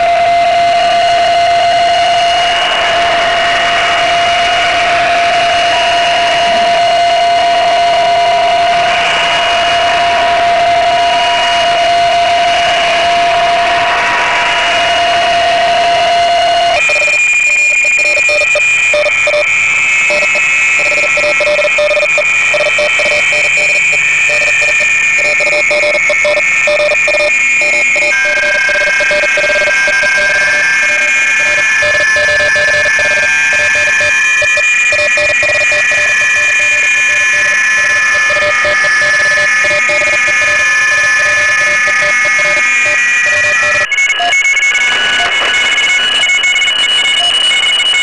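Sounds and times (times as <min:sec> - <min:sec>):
radio band hiss: 0:00.0 - 0:16.8, 0:39.6 - 0:47.3.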